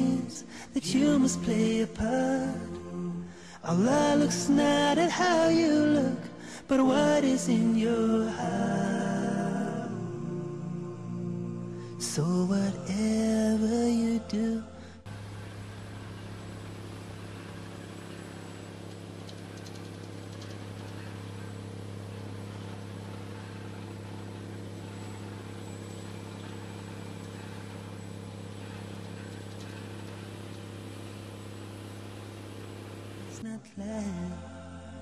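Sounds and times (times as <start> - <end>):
drilling rig engine droning: 15.0 - 33.4.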